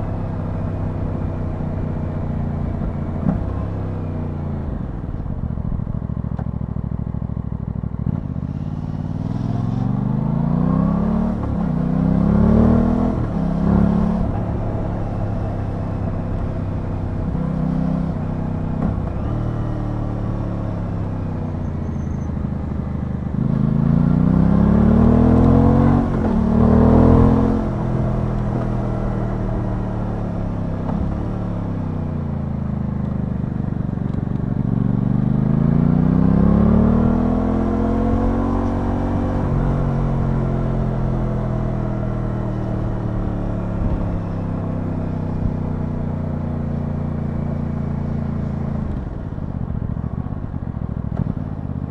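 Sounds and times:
motorcycle engine accelerating: 0:00.0 - 0:51.9.

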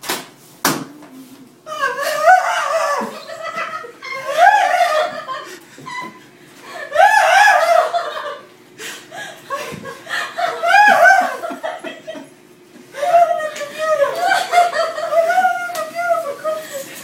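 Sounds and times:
man squealing with excitement: 0:06.9 - 0:08.0.

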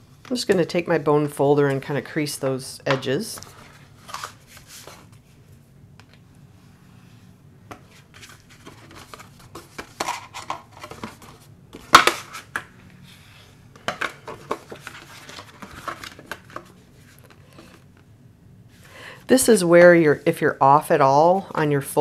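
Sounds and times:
paper rustling: 0:03.4 - 0:05.4, 0:07.9 - 0:12.6, 0:14.0 - 0:17.8.

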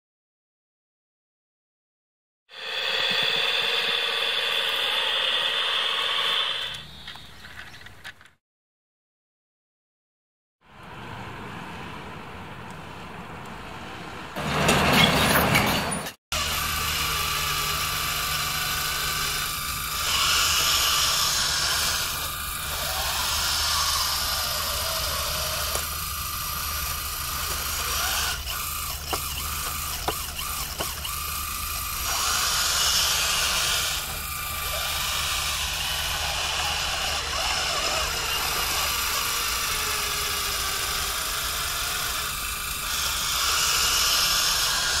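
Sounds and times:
electric motors whining: 0:02.5 - 0:07.2, 0:16.4 - 0:45.0
diesel engine hum: 0:10.7 - 0:32.4.

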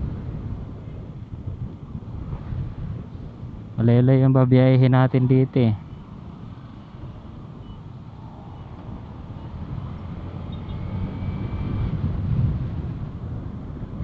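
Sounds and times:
road noise: 0:00.0 - 0:14.0
wind rushing over microphone: 0:00.0 - 0:14.0.

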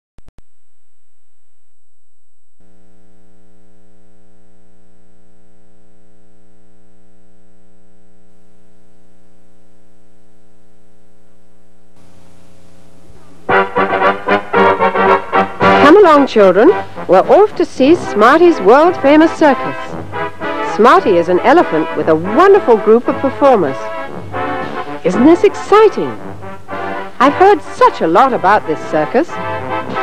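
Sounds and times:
tape hiss: 0:00.2 - 0:30.0
electrical buzzing hum: 0:00.4 - 0:30.0
loud brass music: 0:13.5 - 0:27.7, 0:28.3 - 0:30.0.

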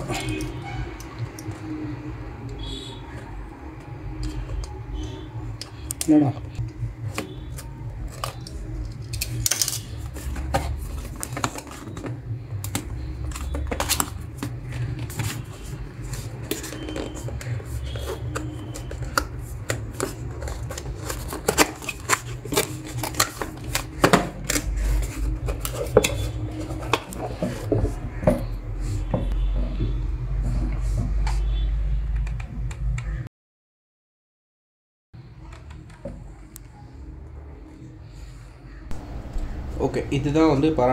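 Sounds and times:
low steady hum: 0:35.2 - 0:40.9.

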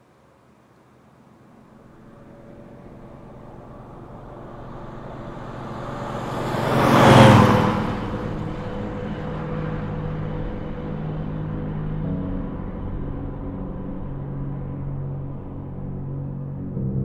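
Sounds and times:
low steady drone: 0:01.3 - 0:17.0
vehicle whooshing past: 0:02.0 - 0:12.1.

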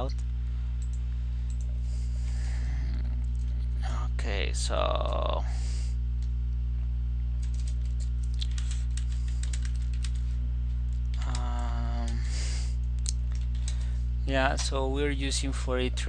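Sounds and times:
low hum: 0:00.0 - 0:16.0
keyboard typing: 0:07.4 - 0:10.2, 0:11.1 - 0:12.2, 0:13.0 - 0:13.8.

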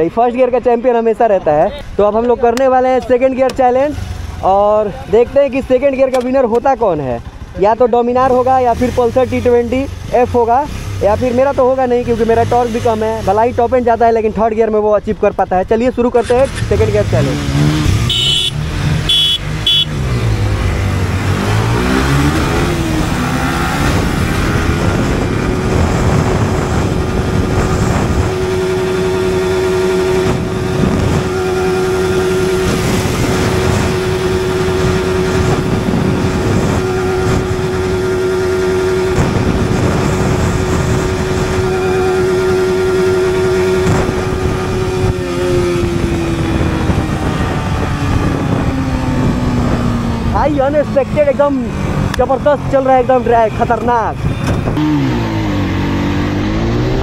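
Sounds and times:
motorcycle engine accelerating: 0:03.4 - 0:14.0, 0:16.0 - 0:57.0
wind on microphone: 0:20.0 - 0:52.2, 0:53.9 - 0:57.0.

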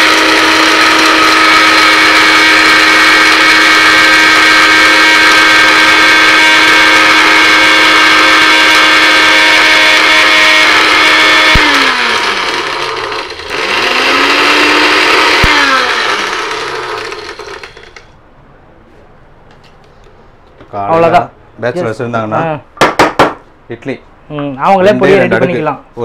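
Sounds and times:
blender motor grinding: 0:00.0 - 0:18.1.

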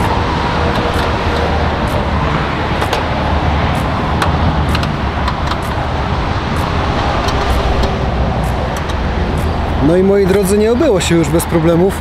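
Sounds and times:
diesel engine running: 0:00.0 - 0:11.4.

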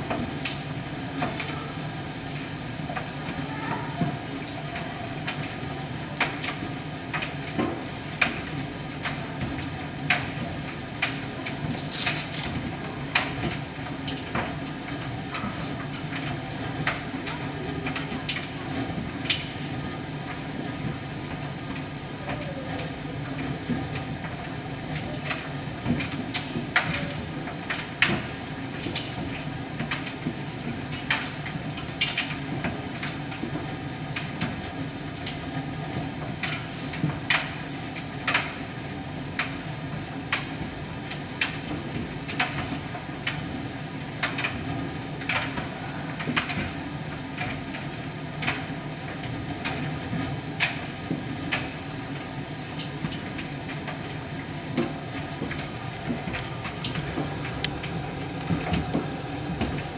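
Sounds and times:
tumble dryer humming: 0:54.2 - 0:59.9.

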